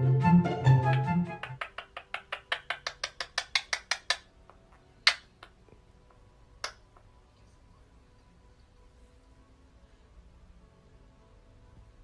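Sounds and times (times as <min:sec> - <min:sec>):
parakeet beak clicking: 0:01.4 - 0:05.6.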